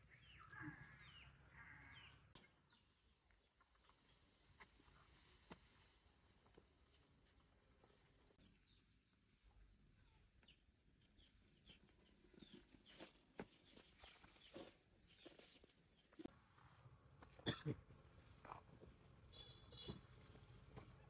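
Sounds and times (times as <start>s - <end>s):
bird chirps: 0.0s - 2.9s, 19.3s - 20.4s.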